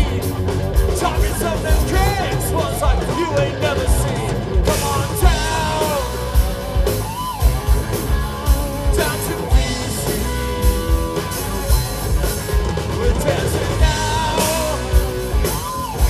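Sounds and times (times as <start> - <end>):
person singing: 0.0 - 6.5, 8.7 - 10.1, 12.9 - 15.6
bass guitar: 0.0 - 16.0
distorted electric guitar: 0.0 - 16.0
drums: 0.0 - 16.0.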